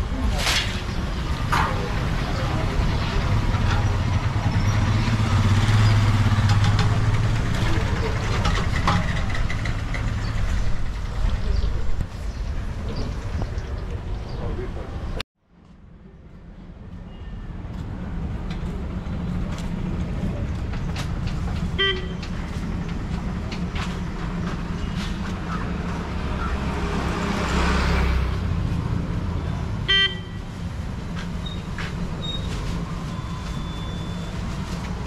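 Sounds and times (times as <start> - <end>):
traffic engine rumble: 0.0 - 35.0
vehicle passing: 1.2 - 11.7, 25.7 - 29.8
vehicle horn toots: 21.8 - 22.2, 29.9 - 30.4.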